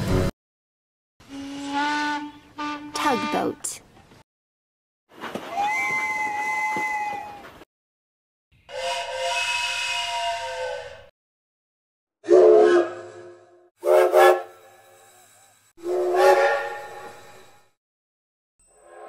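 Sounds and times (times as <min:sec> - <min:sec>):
steam locomotive whistle blasts: 0:01.2 - 0:03.4, 0:08.6 - 0:11.1, 0:12.2 - 0:17.7
toy train whistle chord: 0:08.7 - 0:11.1.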